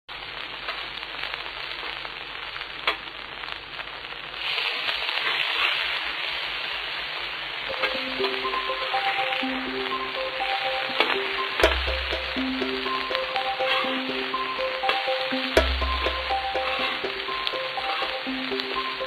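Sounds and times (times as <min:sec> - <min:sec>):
food sizzling: 0:00.1 - 0:19.0
music: 0:07.7 - 0:19.0.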